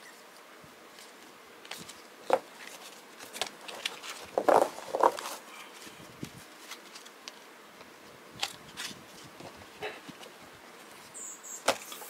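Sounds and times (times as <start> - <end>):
card sleeves rustling: 1.7 - 7.2.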